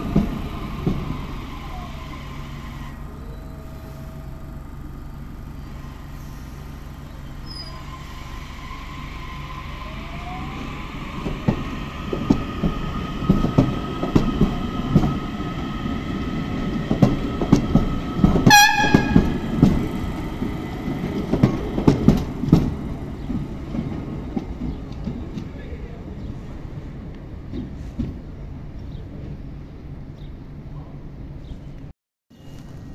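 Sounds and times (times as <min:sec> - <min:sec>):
electric train whine: 0:00.0 - 0:27.4
train wheels knocking over rail joints: 0:16.7 - 0:25.5
train horn blast: 0:18.4 - 0:19.6.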